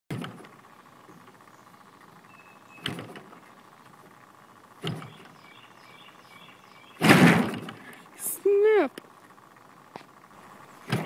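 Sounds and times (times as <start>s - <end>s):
faint high hum: 0.4s - 11.0s
faint high chirps: 1.2s - 2.9s.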